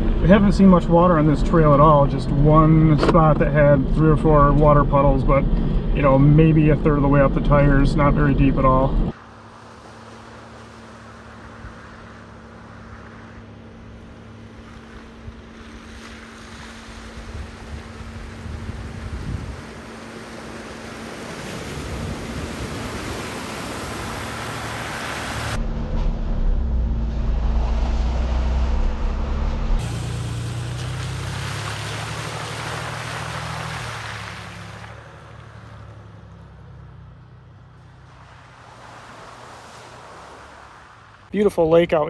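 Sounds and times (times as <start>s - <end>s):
tyres splashing through water: 0.0s - 26.4s, 27.2s - 41.3s
engine hum: 0.0s - 42.0s
wind on microphone: 17.0s - 19.9s.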